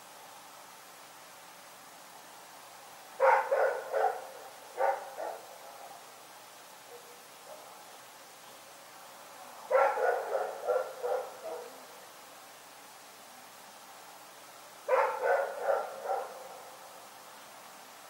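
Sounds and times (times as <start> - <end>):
dog barking: 3.2 - 6.0, 6.9 - 7.8, 9.7 - 11.8, 14.9 - 16.7.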